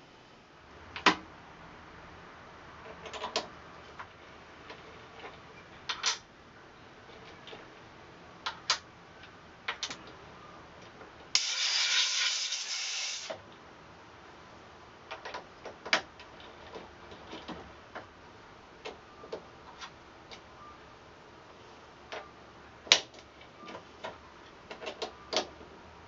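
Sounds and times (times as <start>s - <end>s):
loud steady hiss: 11.3s - 13.4s.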